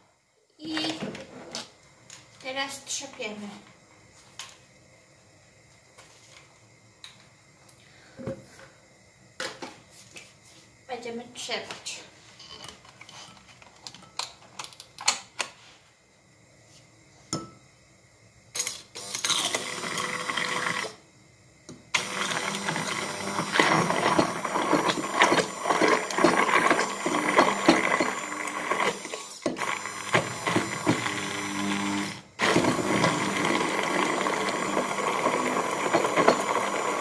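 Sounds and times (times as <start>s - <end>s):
electric blender running: 19.0s - 21.0s, 21.9s - 37.0s.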